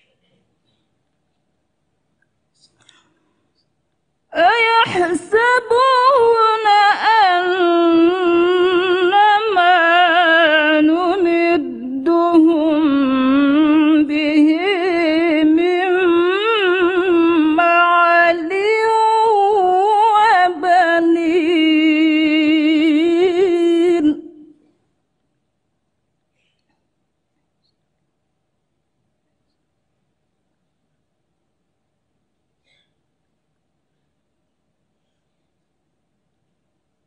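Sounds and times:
woman chanting melodically: 4.3s - 24.6s.

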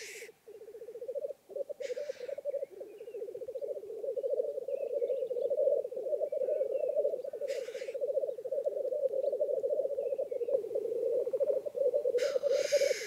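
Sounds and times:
short hissing bird calls: 0.0s - 0.4s, 1.8s - 2.5s, 7.4s - 8.0s, 12.2s - 13.0s
grouse bubbling cooing song: 0.0s - 13.0s.

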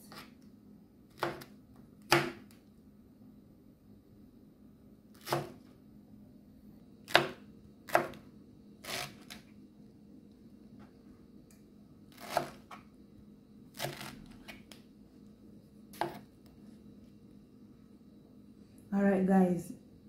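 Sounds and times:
knife chopping on cutting board: 1.1s - 2.6s, 5.2s - 5.6s, 7.1s - 8.2s, 16.0s - 16.2s.

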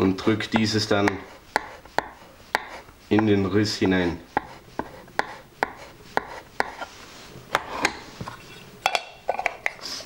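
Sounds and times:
chisel tapping on wood: 0.5s - 3.4s, 4.4s - 6.8s.

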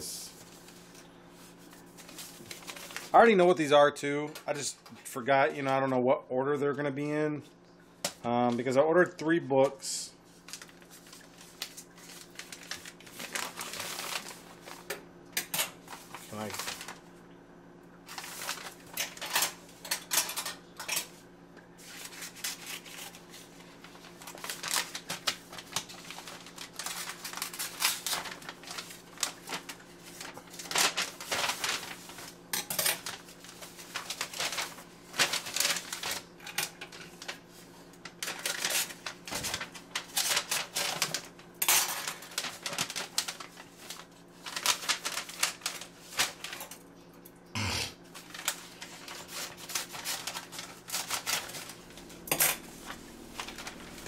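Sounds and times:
faint steady hum: 0.0s - 54.0s
envelope crinkling and rustling: 0.4s - 3.4s, 10.2s - 14.9s, 15.7s - 17.0s, 18.1s - 21.2s, 21.8s - 46.9s, 48.1s - 54.0s
scissors snipping envelope: 38.2s - 46.6s, 48.2s - 51.8s.

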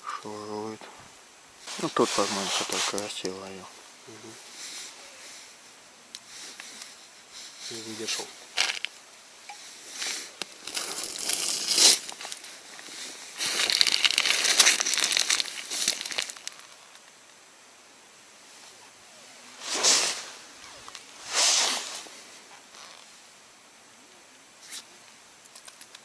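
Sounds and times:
clothing rustling and crackling: 1.6s - 3.6s, 4.4s - 17.1s.

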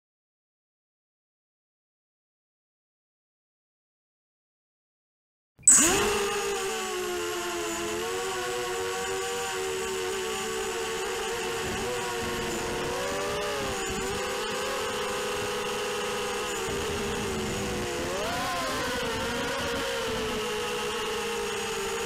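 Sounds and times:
drone motors whining: 5.7s - 22.0s.

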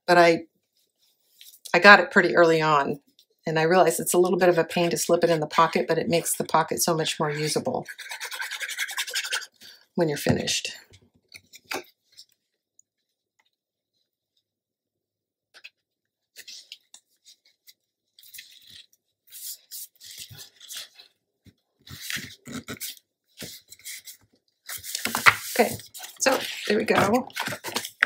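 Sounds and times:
paper rustling and rubbing: 21.8s - 28.0s.

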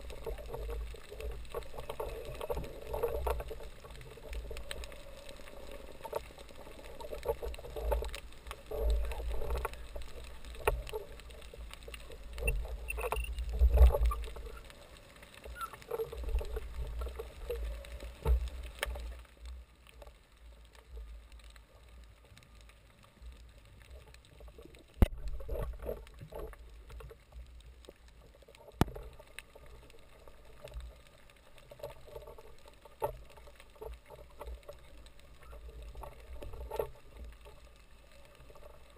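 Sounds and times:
muffled underwater water movement: 0.0s - 38.9s.

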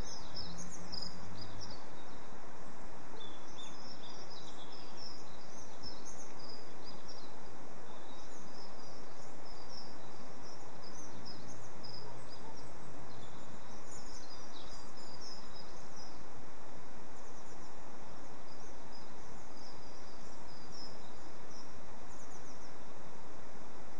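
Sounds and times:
small birds chirping: 0.0s - 23.3s
outdoor hiss: 0.0s - 23.9s.

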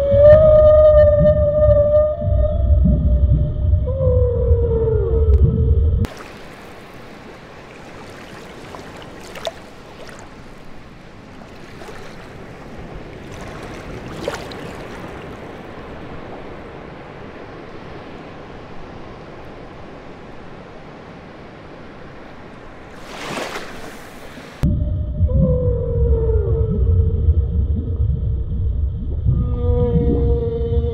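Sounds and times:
whale call: 0.0s - 6.1s, 24.6s - 28.0s, 29.1s - 30.9s
sea water washing: 6.0s - 24.7s.

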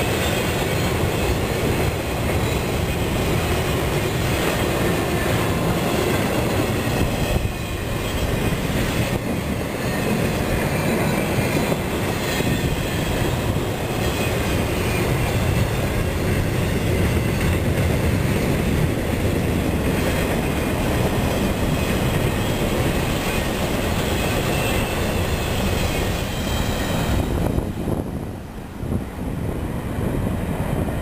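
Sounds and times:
freight train wheels rumbling: 0.0s - 31.0s.

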